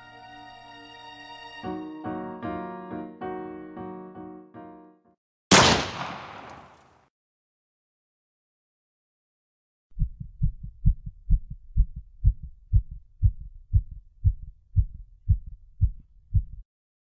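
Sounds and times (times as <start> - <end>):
heartbeat thumps: 9.9 - 16.6.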